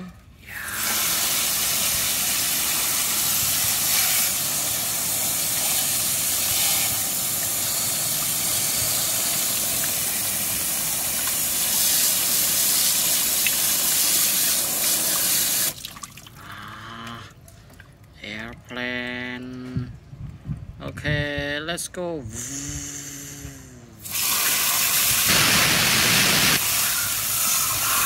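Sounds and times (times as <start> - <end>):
hose water spraying on plastic: 0.5 - 16.1, 24.0 - 28.0.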